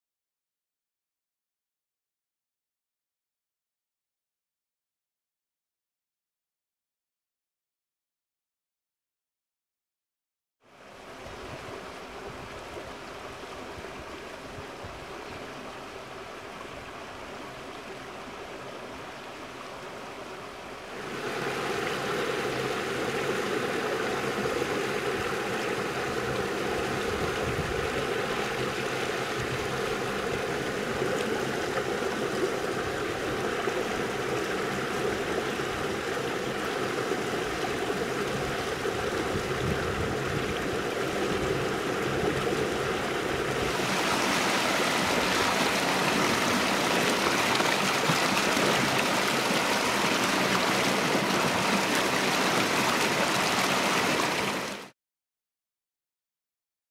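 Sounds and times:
water rushing over a weir: 10.7 - 54.9.

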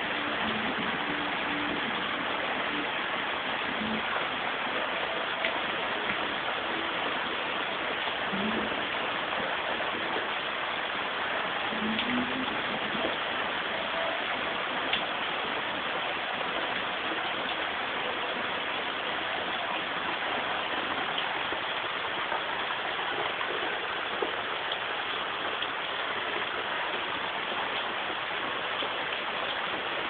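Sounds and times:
heavy rain downpour: 0.0 - 30.0.

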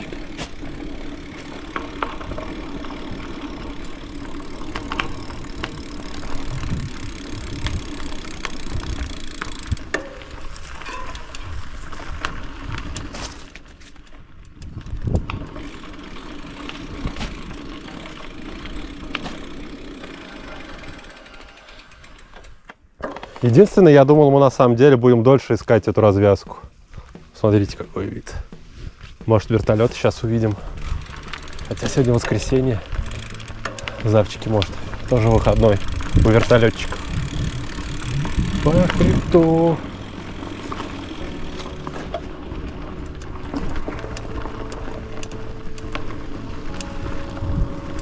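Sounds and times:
freewheel ticking: 0.0 - 10.4, 15.5 - 22.7, 29.7 - 48.0
bicycle frame rattling: 0.0 - 23.9, 26.1 - 48.0
bicycle tyres on dirt path: 0.0 - 48.0
wind rumble on microphone: 6.4 - 8.0, 14.6 - 15.6, 35.2 - 39.6, 47.0 - 48.0.

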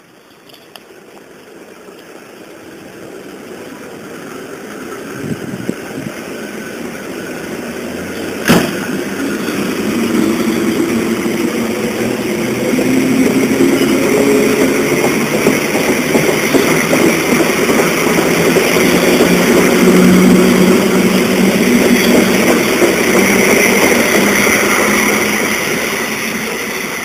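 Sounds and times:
electric train passing: 0.0 - 27.0
sharp knock: 8.4 - 8.9.

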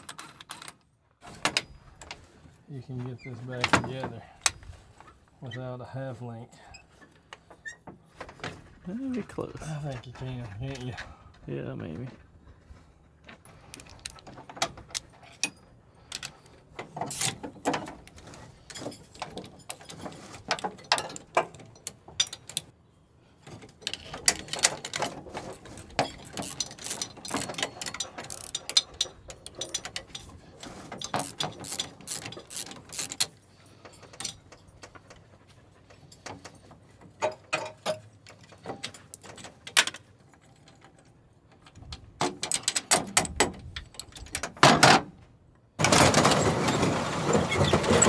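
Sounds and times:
metal chain clinking and rattling: 15.0 - 17.9, 23.8 - 35.4
wrenches knocking on metal: 25.9 - 30.2.

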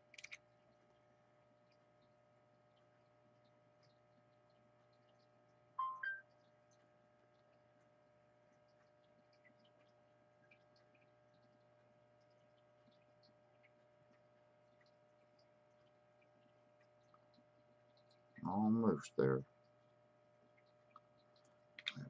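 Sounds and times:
low electrical hum: 0.0 - 22.0
two-note electronic beep: 5.8 - 6.3.

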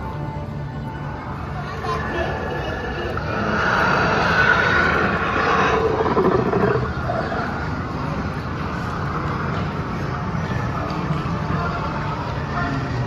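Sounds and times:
dinosaur roar over loudspeakers: 2.7 - 7.8.

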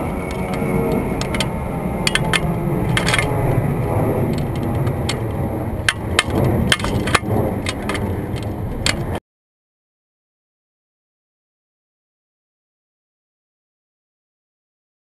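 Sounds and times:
sharp clicks and rattles: 0.0 - 9.2
wind buffeting microphone: 0.0 - 9.2.

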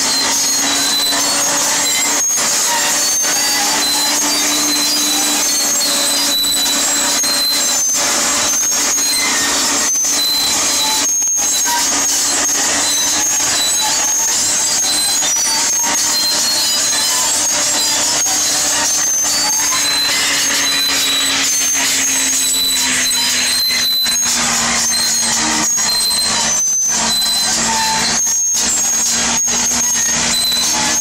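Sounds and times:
bulldozer diesel engine labouring: 0.0 - 31.0
short high squeals: 0.0 - 31.0.

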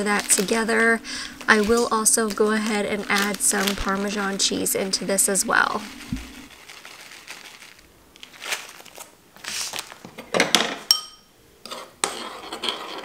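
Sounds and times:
plastic bag crinkling: 0.0 - 10.1.

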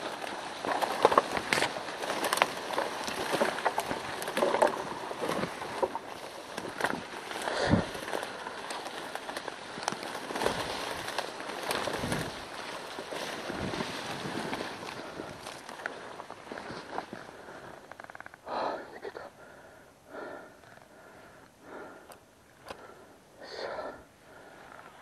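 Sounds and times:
reeds rustling against camera: 0.0 - 19.4.

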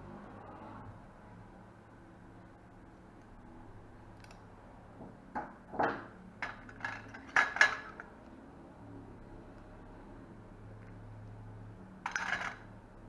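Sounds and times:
metal instruments clinking in dish: 6.4 - 8.0, 12.0 - 12.7.

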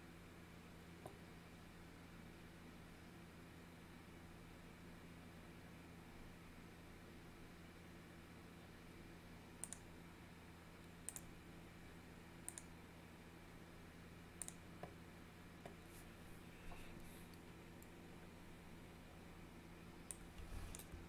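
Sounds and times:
low steady hum: 0.0 - 21.0
faint sharp clicks: 9.6 - 9.9, 11.0 - 11.3, 12.4 - 12.7, 14.4 - 14.6.

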